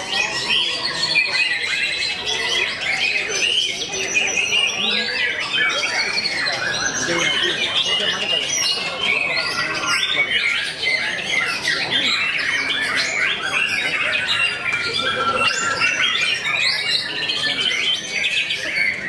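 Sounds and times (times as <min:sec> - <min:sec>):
birds singing in chorus: 0:00.0 - 0:19.0.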